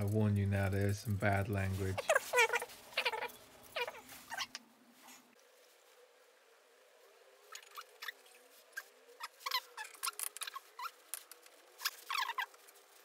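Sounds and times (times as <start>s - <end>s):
metal parts squeaking and clicking: 7.5s - 13.0s.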